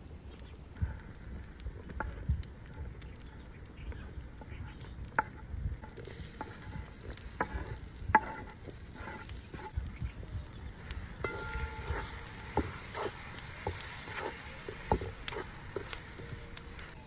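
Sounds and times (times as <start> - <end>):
vegetables sizzling in a pot: 4.0 - 17.0.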